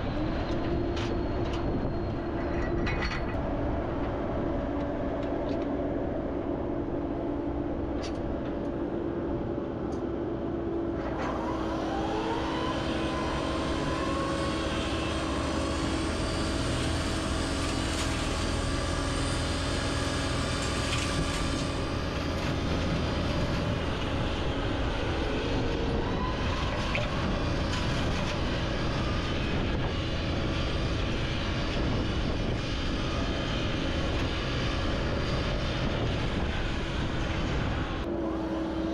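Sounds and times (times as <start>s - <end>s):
excavator diesel engine and hydraulics: 0.0s - 38.9s
machine whine rising in pitch: 11.0s - 38.9s.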